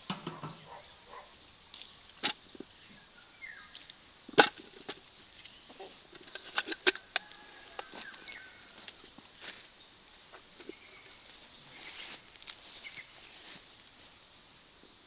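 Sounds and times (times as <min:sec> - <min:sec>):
sharp clicks and knocks: 0:00.0 - 0:00.7.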